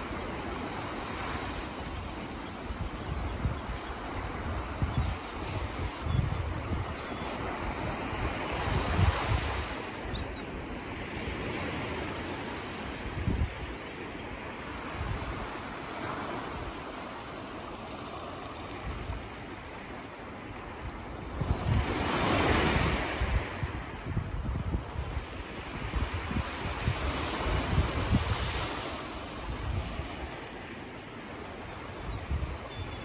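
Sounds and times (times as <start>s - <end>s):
small waves breaking on beach: 0.0s - 33.0s
wind gusting on microphone: 2.7s - 10.4s, 21.2s - 30.4s.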